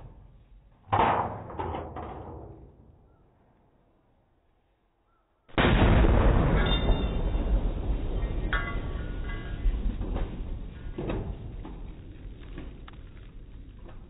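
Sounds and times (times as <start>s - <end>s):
firework bangs in metal can: 5.6s - 11.8s
dense firework blast: 5.6s - 14.0s.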